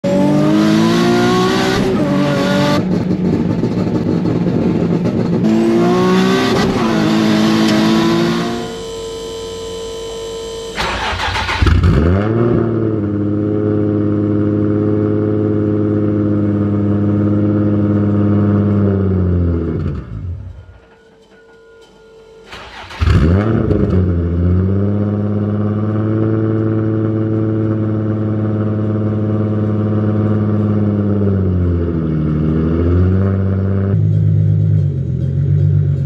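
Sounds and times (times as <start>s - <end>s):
car engine accelerating: 0.0s - 20.9s, 22.5s - 36.0s
car engine idling: 2.6s - 11.7s.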